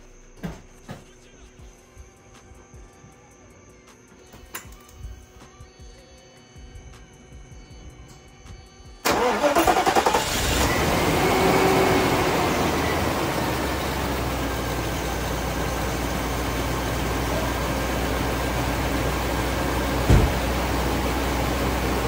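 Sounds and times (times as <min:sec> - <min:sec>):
car engine starting and idling: 0:07.8 - 0:22.0.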